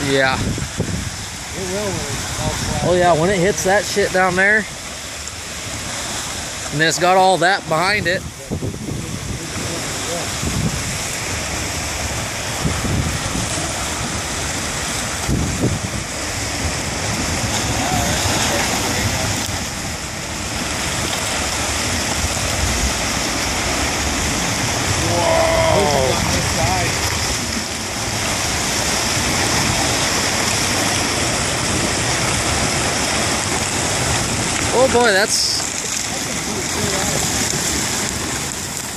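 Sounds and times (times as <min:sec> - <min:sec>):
river ice rushing hiss: 0:00.0 - 0:38.9
wind buffeting the microphone: 0:00.0 - 0:38.9.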